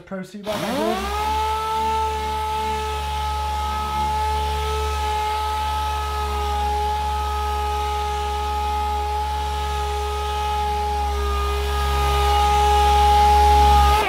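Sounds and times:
air sander whining: 0.4s - 14.0s.

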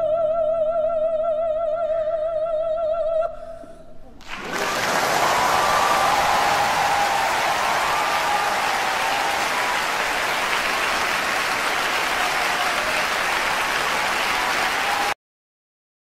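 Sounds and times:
audience applauding: 4.2s - 15.2s.

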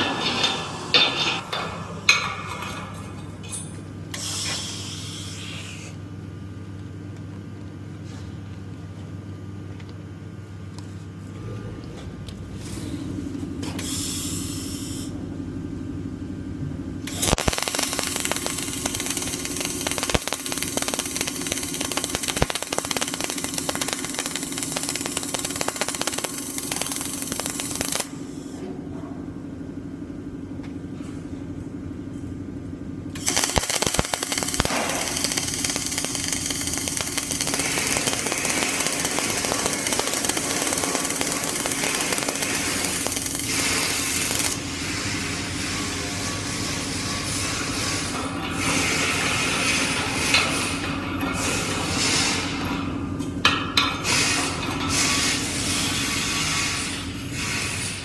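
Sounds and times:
welding arc crackling: 17.1s - 28.5s, 33.2s - 45.8s.

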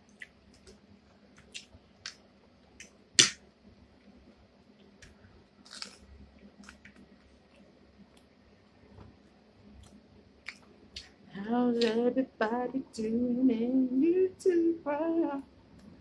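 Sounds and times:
mouth clicks and smacks: 9.8s - 11.2s.

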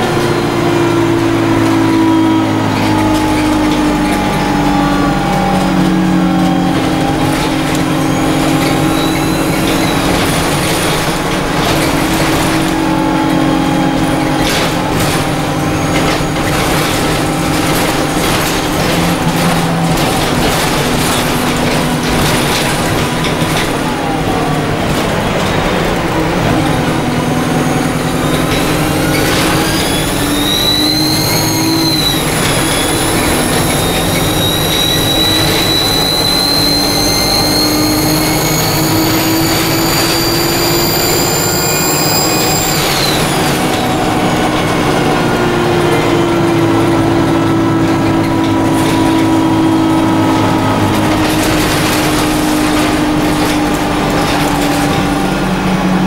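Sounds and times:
bus engine running: 0.0s - 56.0s
bus turbo whine: 0.0s - 56.0s
road noise: 0.0s - 56.0s.

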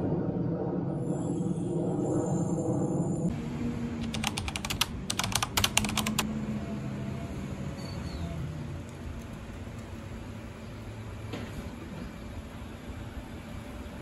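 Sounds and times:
sharp clicks: 4.0s - 6.2s.

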